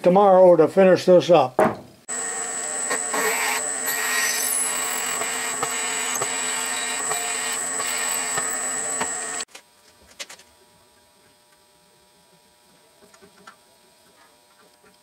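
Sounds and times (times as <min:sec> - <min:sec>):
drill press whining: 0:02.1 - 0:09.5.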